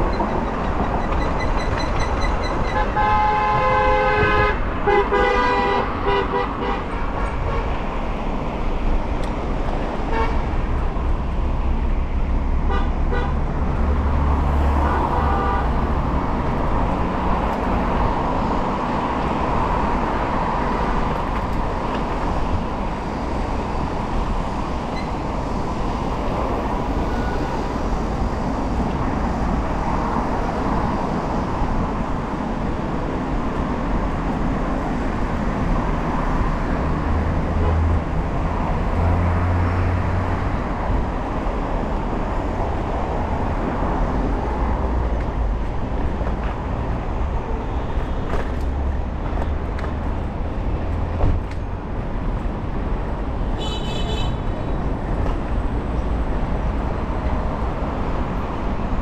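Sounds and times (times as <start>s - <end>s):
city road traffic: 0.0s - 59.0s
vehicle horn honking: 2.7s - 7.7s, 53.6s - 54.4s.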